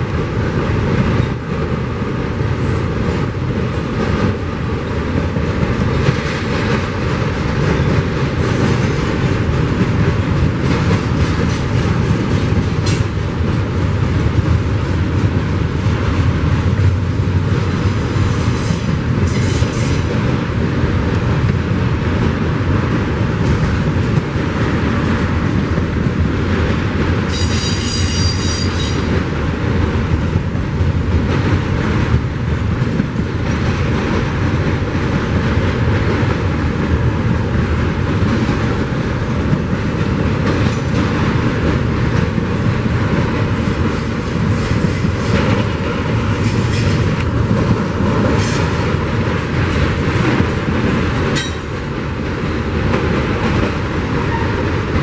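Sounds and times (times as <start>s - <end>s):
freight train wheels rumbling: 0.0s - 55.0s
train wheels squealing: 27.3s - 29.1s.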